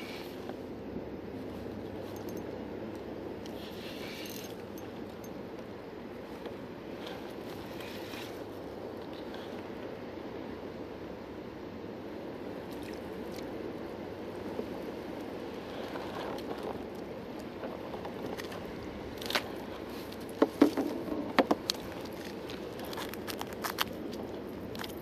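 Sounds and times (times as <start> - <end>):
water and wind wash: 0.0 - 25.0.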